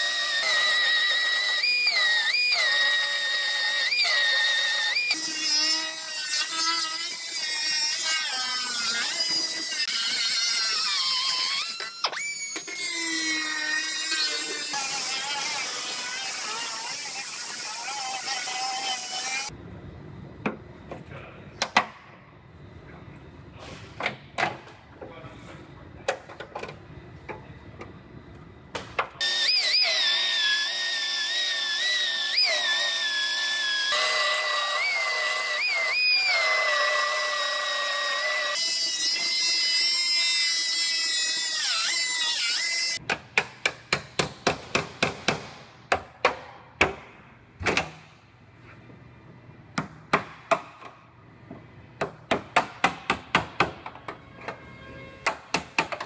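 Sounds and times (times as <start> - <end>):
power tool whining: 29.2 - 43.0.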